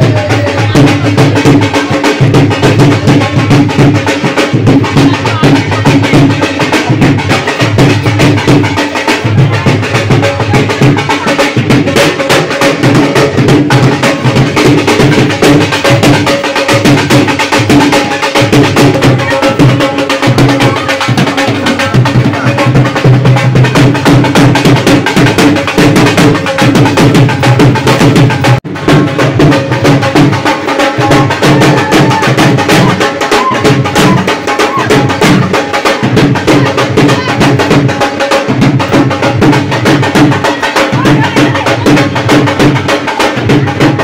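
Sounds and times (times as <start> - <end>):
drums playing dance beat: 0.0 - 44.0.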